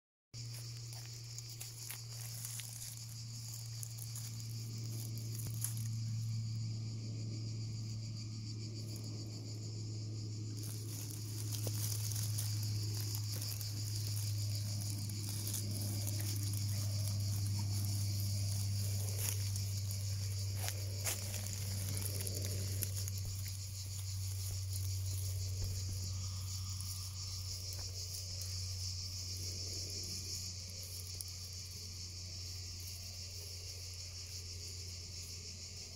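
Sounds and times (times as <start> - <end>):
dry leaves crackling: 0.4 - 6.7, 7.9 - 34.2
constant low hum: 0.4 - 35.9
high-pitched insect chorus: 0.4 - 35.9.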